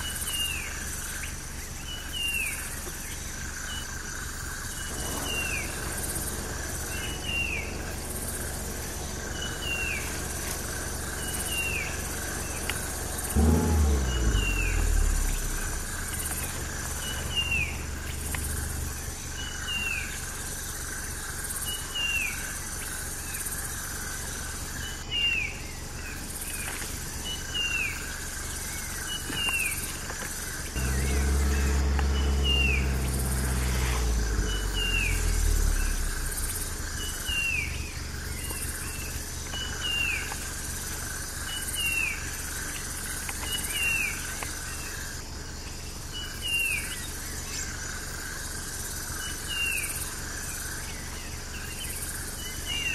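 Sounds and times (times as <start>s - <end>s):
high insect hum: 0.0s - 52.9s
low rumble: 4.8s - 20.5s, 30.7s - 39.3s.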